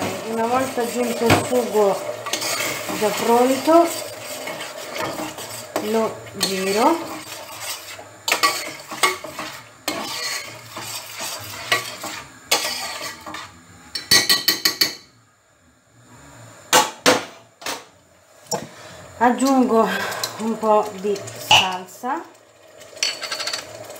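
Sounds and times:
spoon scraping a metal pot: 0:00.0 - 0:14.9, 0:23.0 - 0:23.7.

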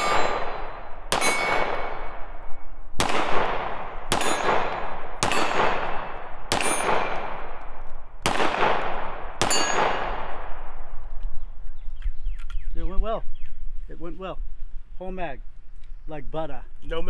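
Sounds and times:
steel targets ringing: 0:00.0 - 0:02.1, 0:04.1 - 0:07.3, 0:09.4 - 0:10.2
pistol shots: 0:00.0 - 0:11.0.

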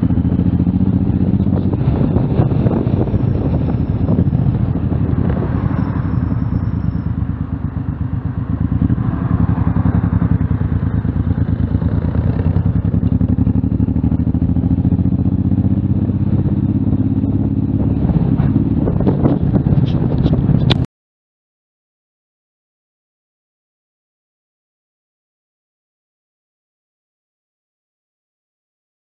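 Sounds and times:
motorcycle engine running: 0:00.0 - 0:20.9.

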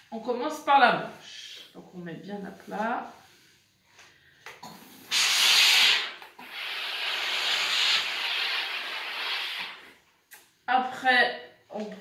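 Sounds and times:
steam iron hissing: 0:05.0 - 0:09.9.

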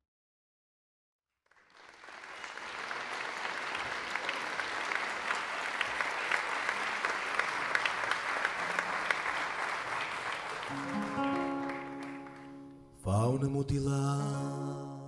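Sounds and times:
audience applauding: 0:01.4 - 0:12.8.

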